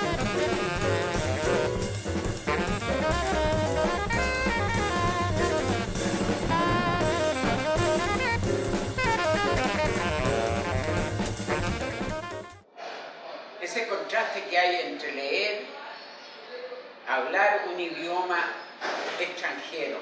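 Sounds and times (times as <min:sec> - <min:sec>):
drum kit beat: 0:00.0 - 0:12.6
jazz music: 0:00.0 - 0:12.7.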